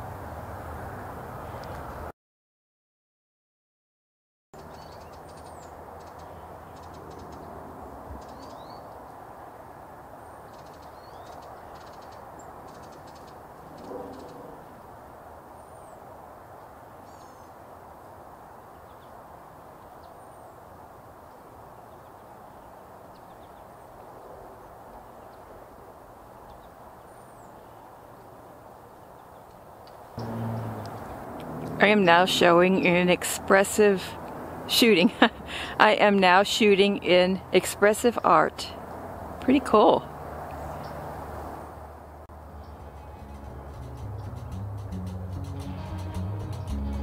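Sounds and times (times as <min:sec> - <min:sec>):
creek rushing: 0:30.2 - 0:35.8.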